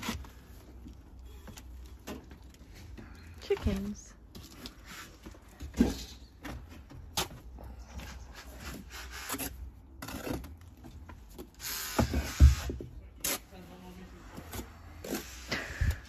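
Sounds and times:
trowel scraping mortar: 8.4 - 10.7.

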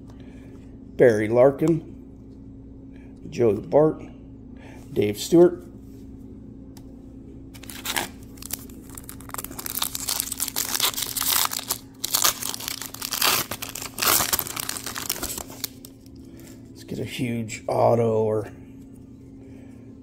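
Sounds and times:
foil wrapper tearing and crinkling: 7.6 - 16.0.

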